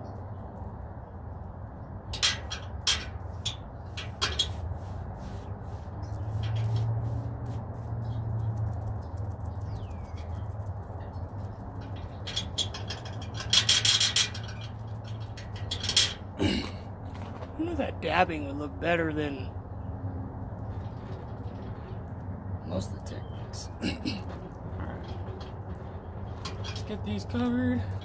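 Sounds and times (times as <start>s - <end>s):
foam brush dabbing paint: 4.6s - 7.9s.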